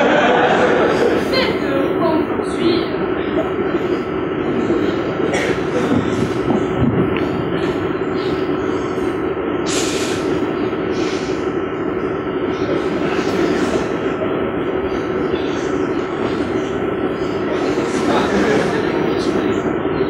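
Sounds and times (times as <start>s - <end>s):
train carriage rumbling: 0.0s - 20.0s.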